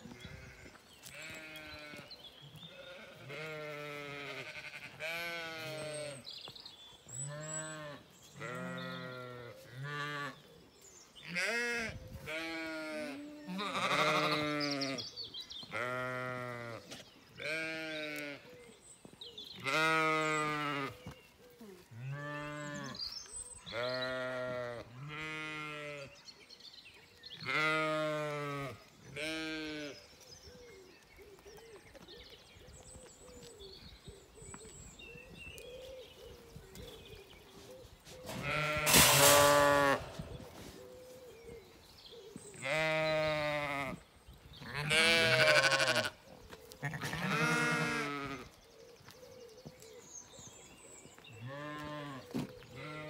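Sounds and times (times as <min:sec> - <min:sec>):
sheep bleating: 0:02.7 - 0:06.2, 0:11.3 - 0:15.0, 0:44.7 - 0:46.2, 0:46.8 - 0:48.4.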